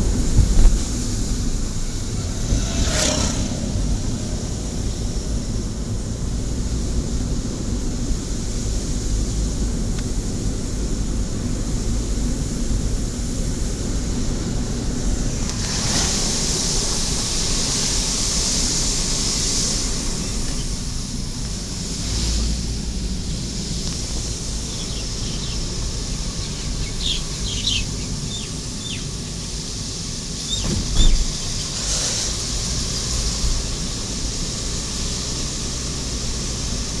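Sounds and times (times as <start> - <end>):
vehicle road and wind noise: 0.0 - 37.0
thump: 30.6 - 31.3.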